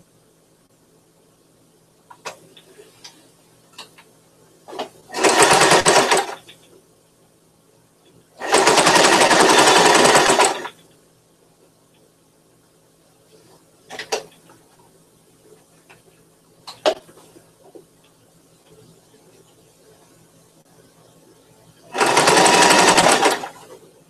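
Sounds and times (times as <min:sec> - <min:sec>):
sewing machine stitching: 0:04.7 - 0:06.5, 0:08.4 - 0:10.8, 0:21.9 - 0:23.7.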